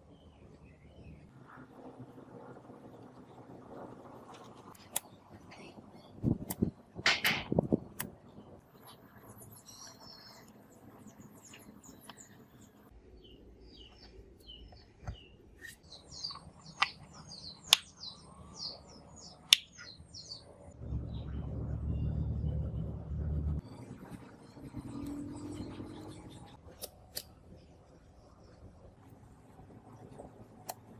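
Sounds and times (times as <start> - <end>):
small birds chirping: 7.7 - 22.2
low rumble: 20.5 - 26.6.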